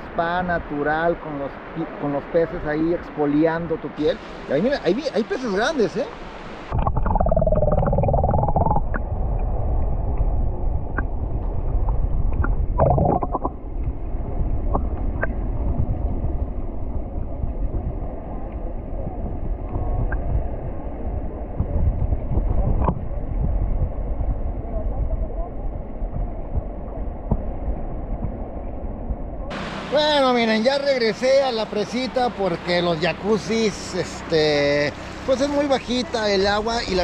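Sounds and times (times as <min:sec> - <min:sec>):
underwater river rumbling: 0:00.0 - 0:37.0
muffled wavering tones: 0:06.7 - 0:29.6.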